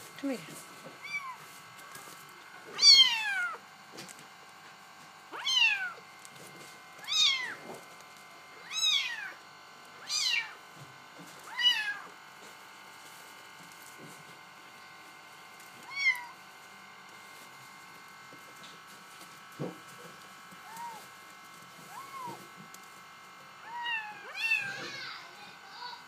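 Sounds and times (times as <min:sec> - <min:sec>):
kittens meowing: 0:01.0 - 0:01.4, 0:02.7 - 0:03.6, 0:05.4 - 0:06.0, 0:07.0 - 0:07.6, 0:08.6 - 0:09.4, 0:10.0 - 0:10.6, 0:15.8 - 0:16.4, 0:20.6 - 0:21.1, 0:21.9 - 0:22.4, 0:23.6 - 0:25.1.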